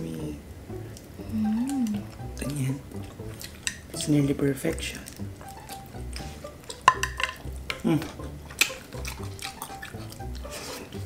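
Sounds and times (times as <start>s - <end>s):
chewing and lip smacks: 0.9s - 3.9s, 5.0s - 6.8s, 7.7s - 11.0s
person humming: 1.2s - 2.3s, 7.8s - 8.3s.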